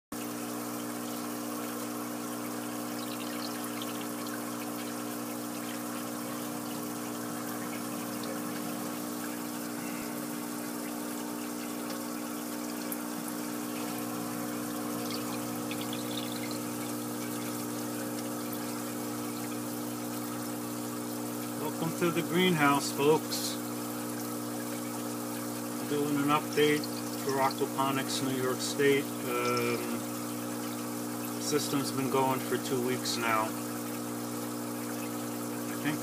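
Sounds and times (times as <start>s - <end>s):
pump humming: 0.1s - 36.0s
water trickling into tank: 0.1s - 36.0s.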